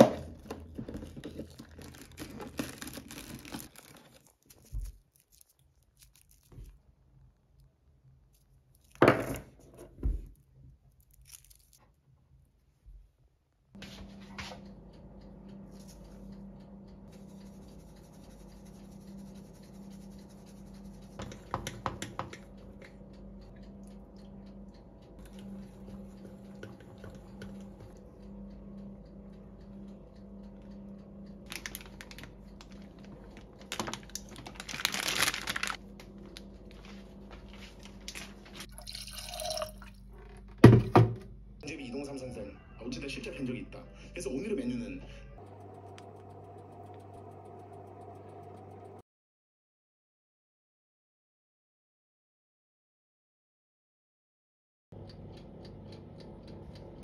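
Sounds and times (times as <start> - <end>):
steady low hum: 13.8 - 40.2, 45.1 - 49.0
water pouring into pot: 38.7 - 39.9.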